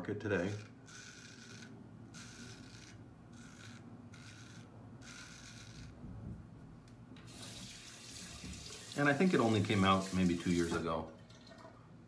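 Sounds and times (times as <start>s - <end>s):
razor scraping stubble: 0.4s - 6.0s.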